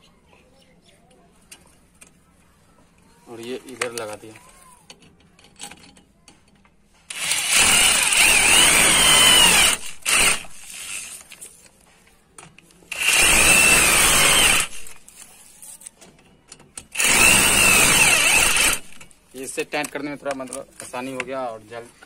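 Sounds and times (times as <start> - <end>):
electric drill whining: 7.1 - 11.2, 12.9 - 15.0, 16.9 - 19.1.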